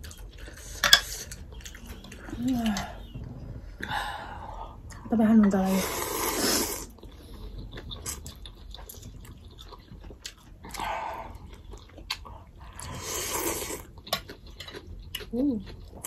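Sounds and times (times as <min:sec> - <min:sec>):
wet chewing: 0:04.8 - 0:16.0
slurping noodles: 0:05.7 - 0:07.0, 0:12.8 - 0:13.9.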